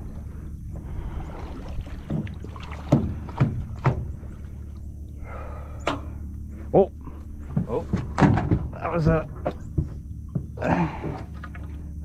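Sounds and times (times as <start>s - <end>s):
steady low rumble: 0.0s - 12.0s
knocks on boat hull: 2.9s - 4.1s, 7.5s - 8.8s.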